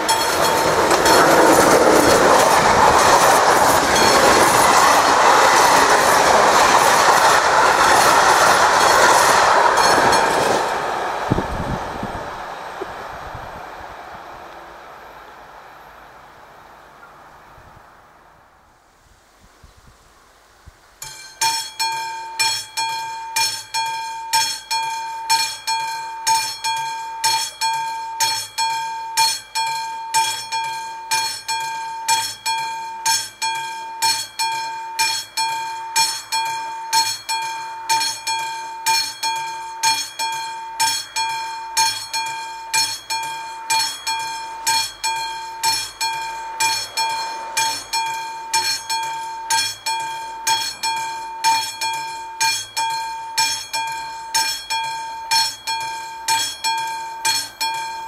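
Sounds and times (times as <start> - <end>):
mechanical crossing bell ringing: 0.0 - 2.4, 21.0 - 58.0.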